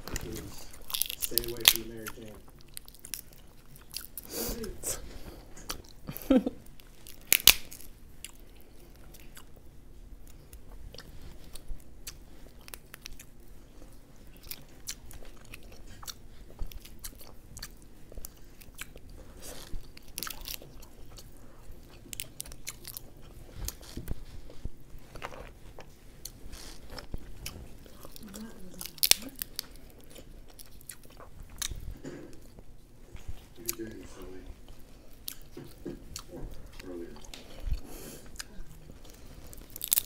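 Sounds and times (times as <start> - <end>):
crab shell cracking: 0.0 - 4.1, 7.0 - 7.9, 28.8 - 29.9, 39.6 - 40.0
chewing and mouth sounds: 0.0 - 4.3, 5.2 - 40.0.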